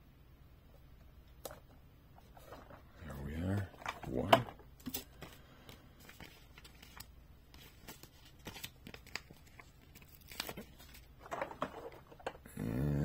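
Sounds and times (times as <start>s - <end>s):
paper rustling and crinkling: 2.2s - 12.4s.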